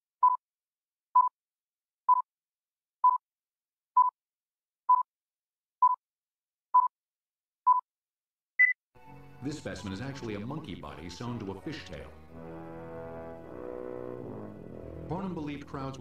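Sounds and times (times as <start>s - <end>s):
electronic countdown beeps: 2.1s - 2.3s, 3.0s - 3.2s, 4.0s - 4.2s, 4.9s - 5.1s.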